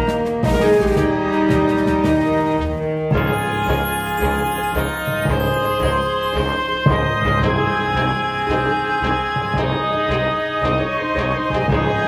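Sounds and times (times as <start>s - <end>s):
held melodic notes: 3.1s - 11.0s.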